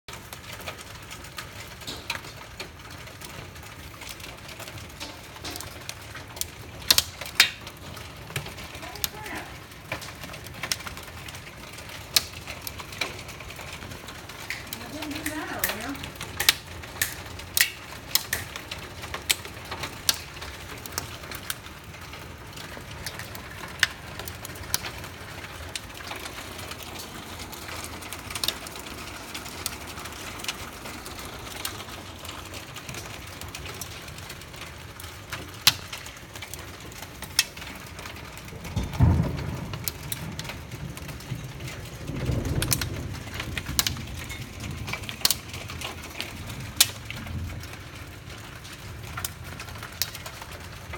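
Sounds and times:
hailstones ticking: 0:00.1 - 0:50.9
rain hissing: 0:00.1 - 0:50.9
low rumbles: 0:36.4 - 0:50.9.

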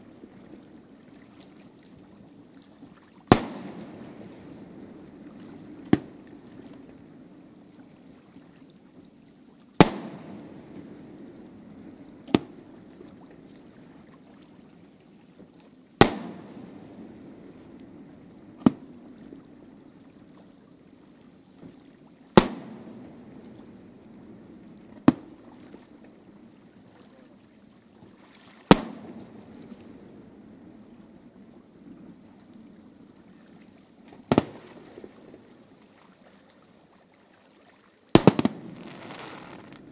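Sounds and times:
fireworks booms echoing: 0:09.8 - 0:11.5, 0:16.0 - 0:17.4, 0:22.4 - 0:23.7, 0:28.7 - 0:29.7, 0:34.2 - 0:35.3, 0:38.2 - 0:39.9
fireworks cracks: 0:38.2 - 0:39.9.

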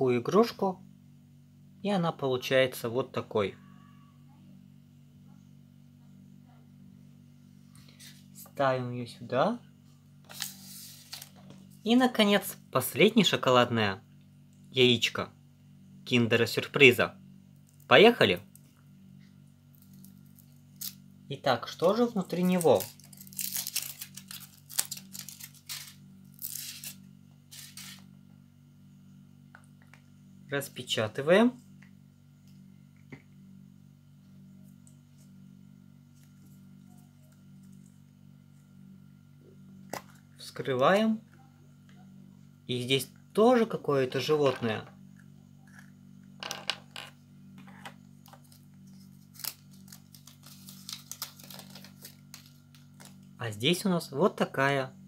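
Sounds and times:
steady low hum: 0:00.0 - 0:55.0
foil wrapper crinkling: 0:19.7 - 0:21.0, 0:21.8 - 0:28.0, 0:48.2 - 0:53.3.

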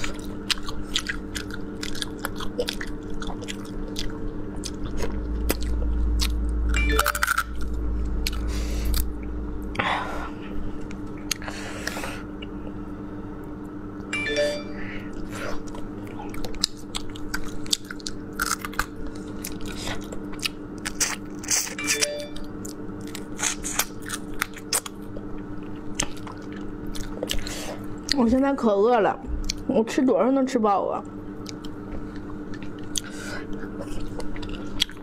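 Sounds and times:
person chewing: 0:00.0 - 0:09.3, 0:10.8 - 0:12.8, 0:15.1 - 0:28.2, 0:31.4 - 0:35.0
steady low hum: 0:00.0 - 0:35.0.

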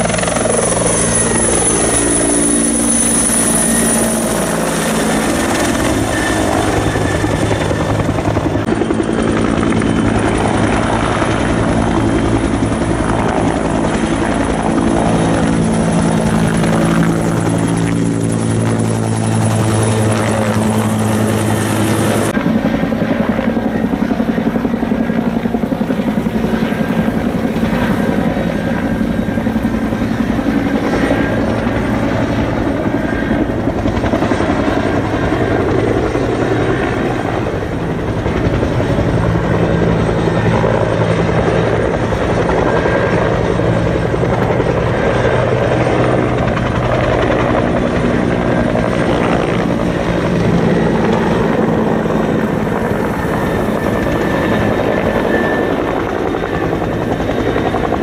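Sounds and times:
helicopter rotor chop and engine: 0:00.0 - 0:58.0.

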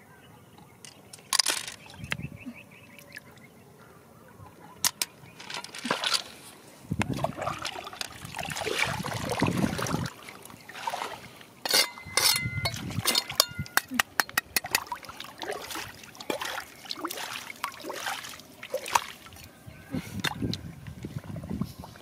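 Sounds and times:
river water sloshing and splashing: 0:05.4 - 0:13.6, 0:14.6 - 0:19.5.

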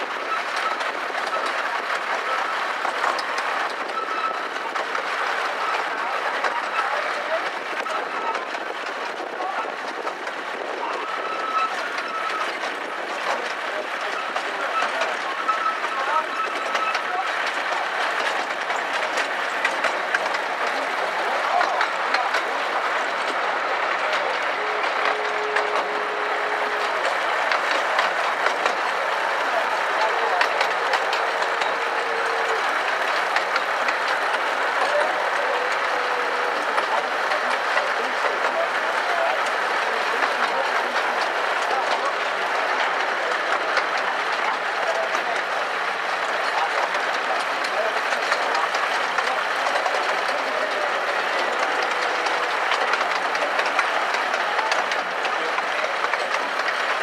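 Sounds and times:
train wheels rolling on track: 0:00.0 - 0:57.0
faint wheel squeal: 0:03.8 - 0:04.6, 0:11.0 - 0:12.6, 0:14.1 - 0:17.2.

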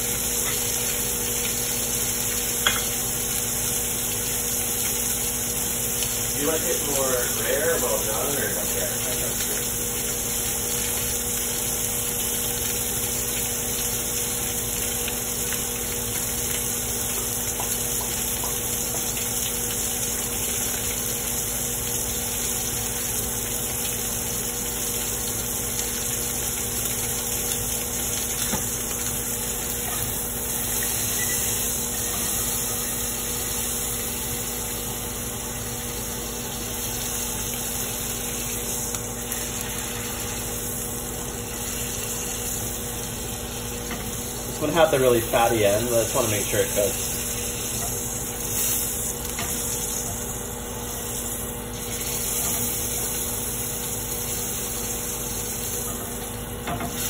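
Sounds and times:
steak sizzling in a pan: 0:00.0 - 0:57.0.

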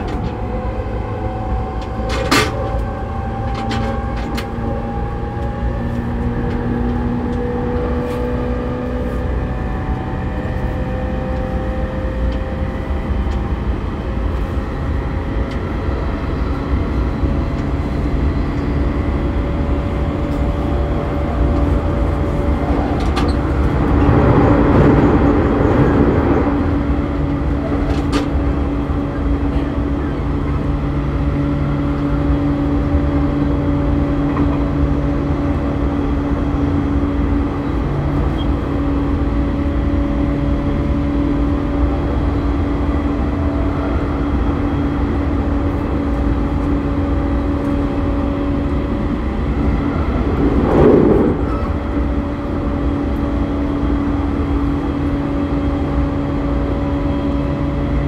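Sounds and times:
train traction motors whining: 0:00.0 - 0:58.0
wheels rumbling on track: 0:00.0 - 0:58.0.

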